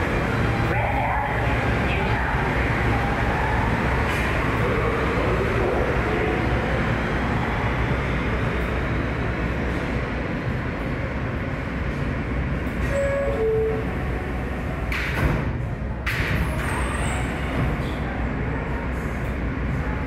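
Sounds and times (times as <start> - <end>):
subway train wheels rumbling: 0.0 - 20.0.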